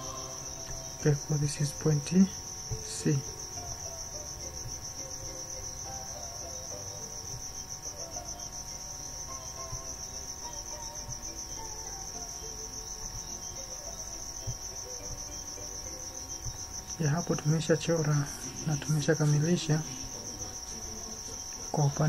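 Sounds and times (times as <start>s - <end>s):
faint wavering tones: 0.0s - 22.0s
high-pitched insect trill: 0.0s - 22.0s.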